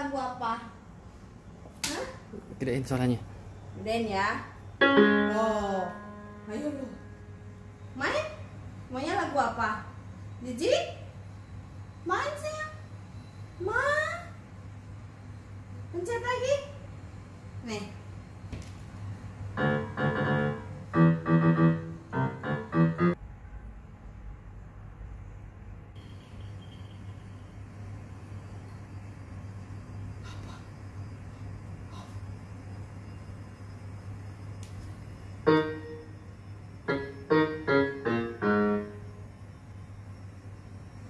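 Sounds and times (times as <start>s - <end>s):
electronic keyboard notes: 4.8s - 7.2s, 19.6s - 23.2s, 35.5s - 36.2s, 36.9s - 39.0s.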